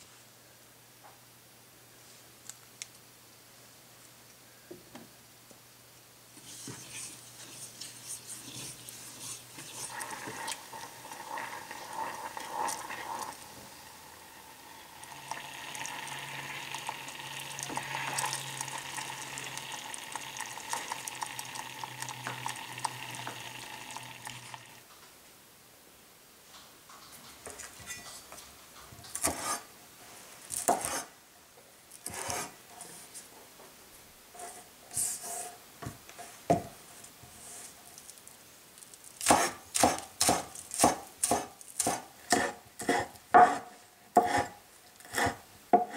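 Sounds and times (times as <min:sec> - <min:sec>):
spatula stirring: 0:06.4 - 0:13.9, 0:14.8 - 0:24.8, 0:29.0 - 0:29.7
syrup sizzling and bubbling: 0:06.5 - 0:24.9
cleaver cutting on wooden board: 0:29.2 - 0:29.6, 0:30.7 - 0:31.1, 0:32.1 - 0:32.5, 0:39.2 - 0:45.9.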